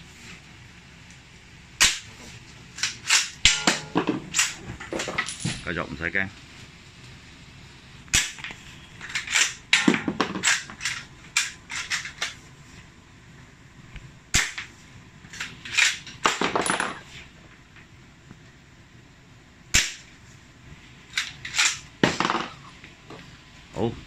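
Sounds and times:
airsoft rifle shots: 19.7 - 20.1.

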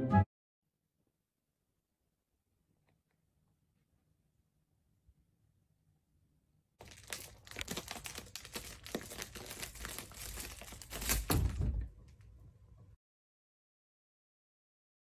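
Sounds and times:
plastic sheeting crinkling: 6.8 - 11.8.

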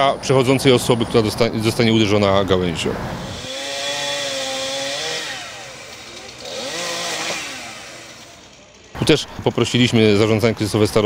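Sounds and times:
chainsaw revving: 3.2 - 9.8.

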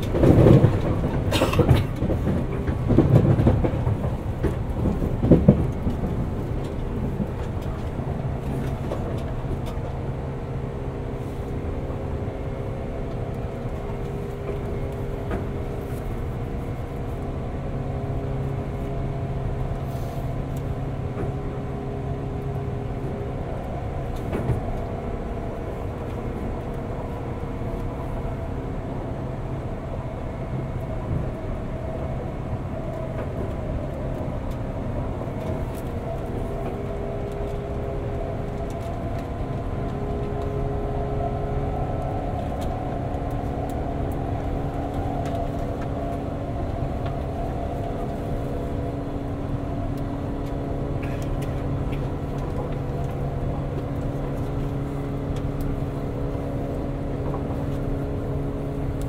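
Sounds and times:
train traction motors humming: 0.0 - 59.0
wheels rumbling on rail: 0.0 - 59.0.

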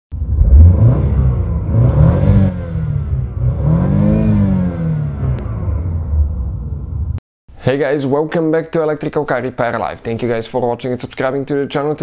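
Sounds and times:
car engine revving: 0.2 - 7.2.

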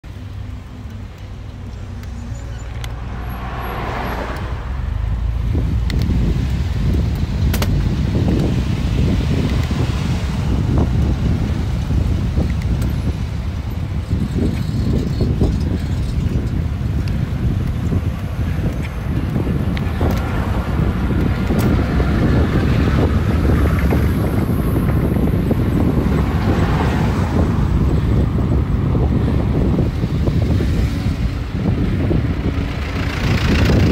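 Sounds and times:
wind rumble on microphone: 0.1 - 33.9
car passing close: 1.6 - 12.2, 18.6 - 33.9.

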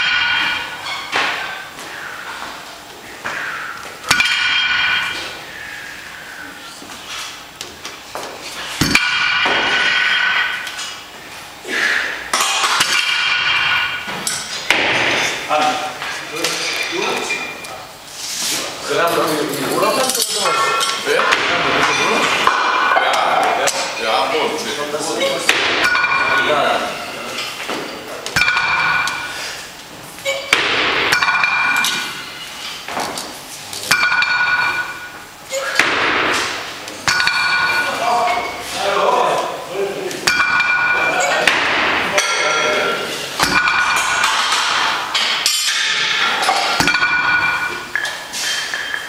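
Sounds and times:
iron weight plates clanking: 0.0 - 2.4, 3.3 - 5.8, 8.6 - 10.9, 11.9 - 15.5, 19.2 - 32.9, 33.8 - 38.8, 40.2 - 49.0.

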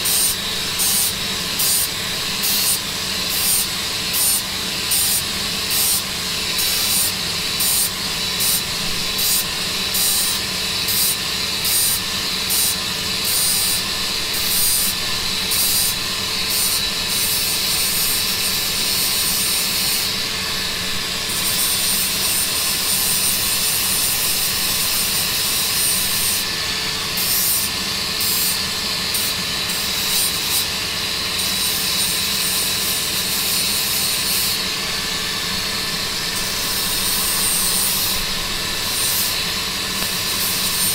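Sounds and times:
hand saw cutting plastic pipe: 0.0 - 20.2, 21.2 - 26.5, 36.2 - 40.9.

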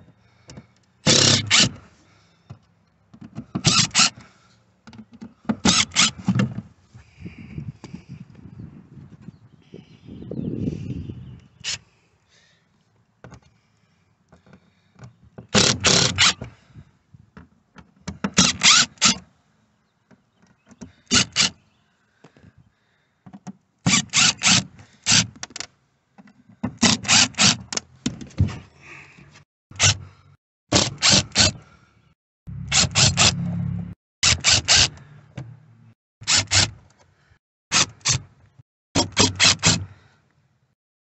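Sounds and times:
cordless drill whirring: 1.1 - 1.8, 3.6 - 4.2, 18.4 - 19.2, 23.9 - 25.2, 26.8 - 27.6, 39.0 - 39.9.

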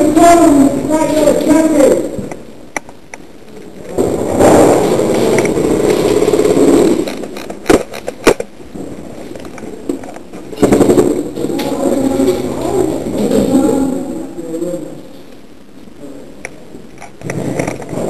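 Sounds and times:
sharp cracks: 0.0 - 13.6
airsoft rifle full-auto burst: 4.3 - 7.3.

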